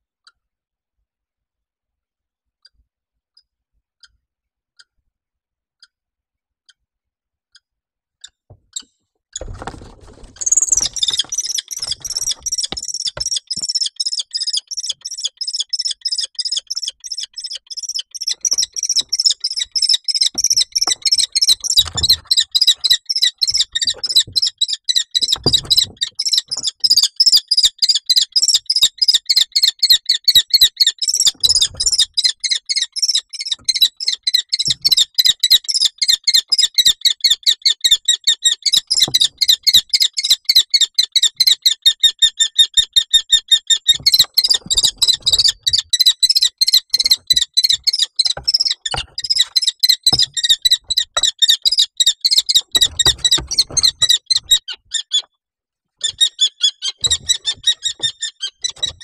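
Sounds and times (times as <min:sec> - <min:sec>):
birds thumping against box: 0:09.4 - 0:13.7, 0:18.4 - 0:24.5, 0:25.2 - 0:27.0, 0:31.3 - 0:32.1, 0:43.9 - 0:54.6, 0:57.0 - 0:59.0
kestrel shrill alarm calls: 0:10.4 - 0:55.3, 0:56.0 - 0:59.0.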